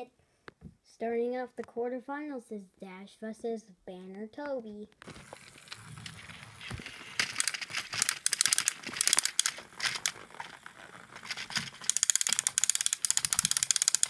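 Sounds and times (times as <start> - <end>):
toy train gears clicking: 5.2 - 14.0.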